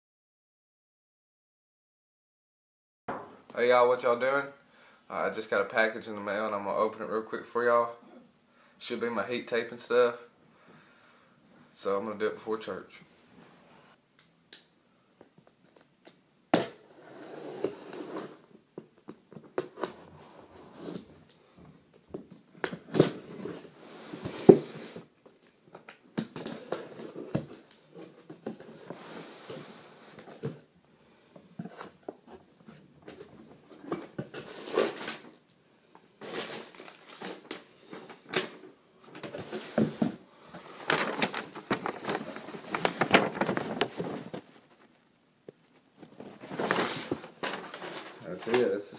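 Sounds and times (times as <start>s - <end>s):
packing tape and cardboard tearing: 24.2s - 28.9s, 46.4s - 48.7s
paper rustling: 36.2s - 45.0s, 46.0s - 48.9s.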